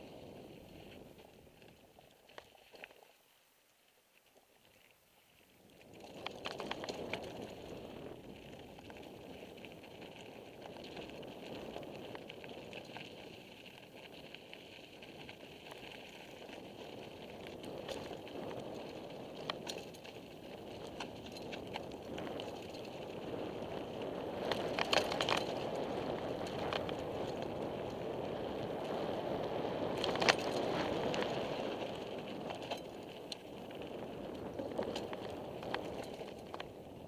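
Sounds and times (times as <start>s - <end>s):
bicycle tyres rolling on gravel: 0.0s - 37.0s
rattles and clicks: 24.5s - 25.6s, 30.0s - 31.3s, 32.4s - 33.4s, 34.3s - 36.7s.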